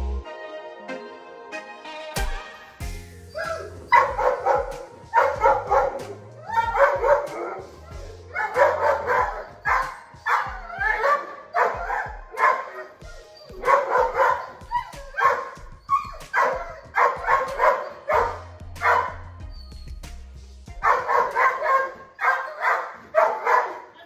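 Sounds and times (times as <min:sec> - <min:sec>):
background music with bass line: 0:00.0 - 0:22.2
large dog barking: 0:03.4 - 0:19.2, 0:20.8 - 0:24.0.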